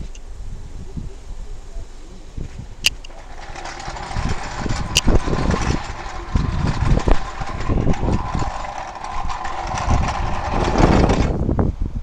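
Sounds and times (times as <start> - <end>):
low thumps and camera rustling: 2.4 - 11.6.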